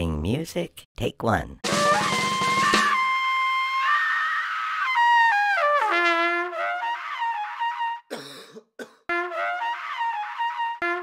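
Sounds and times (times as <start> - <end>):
trumpet-like horn playing: 1.6 - 8.1, 9.1 - 11.0.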